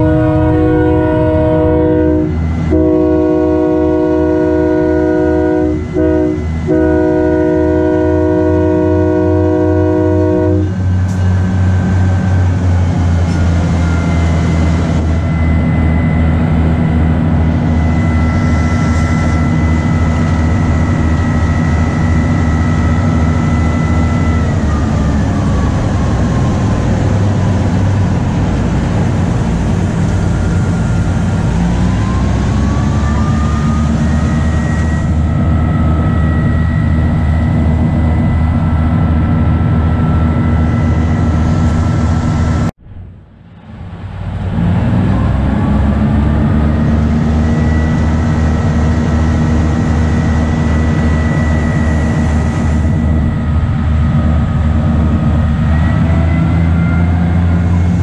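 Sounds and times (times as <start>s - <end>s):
locomotive horn blast: 0.0s - 12.0s, 29.7s - 38.8s, 55.5s - 58.0s
diesel engine drone: 0.0s - 58.0s
high drivetrain whine: 0.0s - 58.0s.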